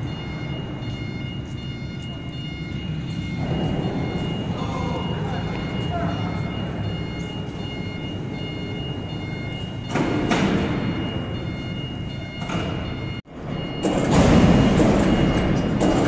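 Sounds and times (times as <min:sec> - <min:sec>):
high electronic beeping: 0:00.0 - 0:15.7
low industrial rumble: 0:00.0 - 0:16.0
machinery clattering: 0:06.4 - 0:16.0.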